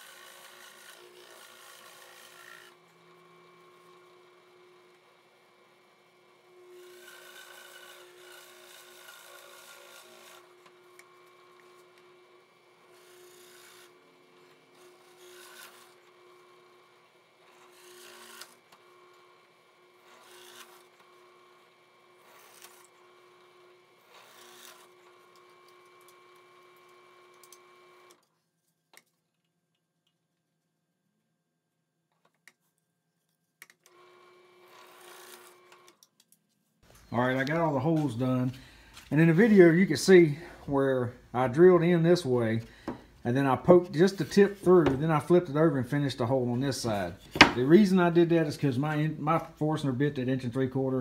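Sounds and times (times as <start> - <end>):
drill bit boring into wood: 0.0 - 28.2, 33.9 - 35.9
drill press motor humming: 0.0 - 28.2, 33.8 - 36.0.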